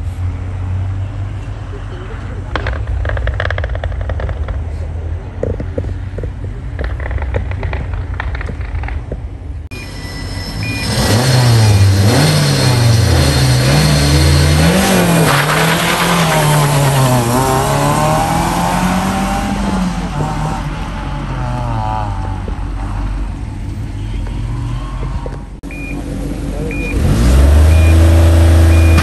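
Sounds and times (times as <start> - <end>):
rally car engine revving and accelerating: 10.7 - 23.1, 26.6 - 29.0.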